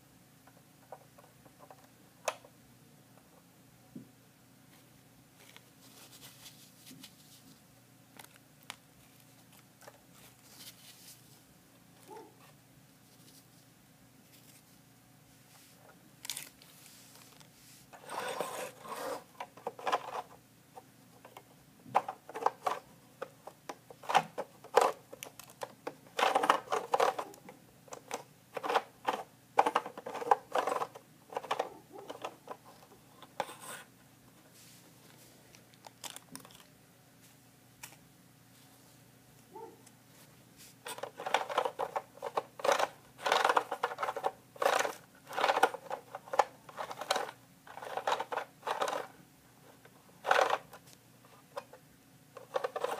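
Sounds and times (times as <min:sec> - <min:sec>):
plastic bricks clicking: 0:40.9 - 0:49.1.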